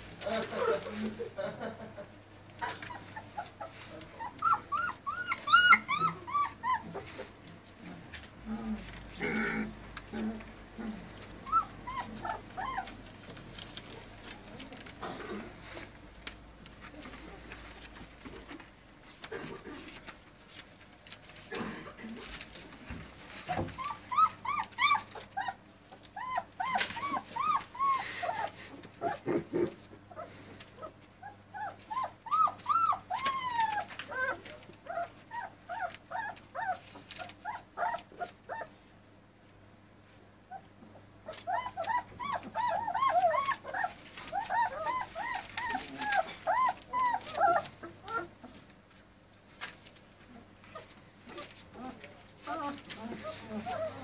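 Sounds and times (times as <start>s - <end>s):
puppies whimpering: 2.6s - 7.5s, 8.7s - 14.7s, 23.2s - 38.9s, 40.5s - 48.7s, 50.2s - 54.0s.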